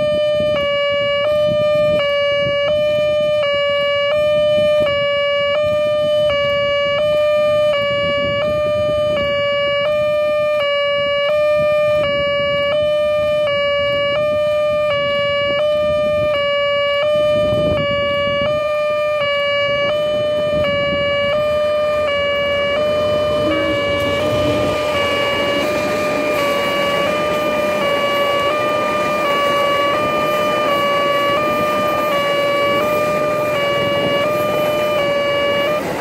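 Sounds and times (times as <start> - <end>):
level crossing alarm two-beat tone: 20.0 - 36.0.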